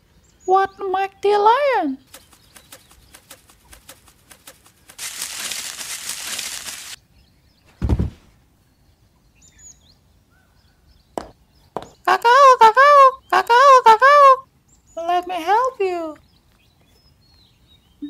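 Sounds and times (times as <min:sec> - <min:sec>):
rustling bush: 0:02.0 - 0:07.0
wing-flap ticks: 0:02.1 - 0:07.0
heavy thump: 0:07.8 - 0:08.3.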